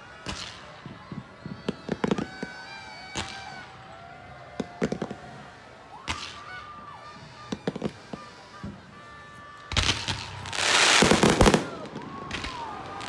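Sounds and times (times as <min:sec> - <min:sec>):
fireworks bangs: 0:00.0 - 0:13.0
cluster of firework cracks: 0:09.7 - 0:13.0.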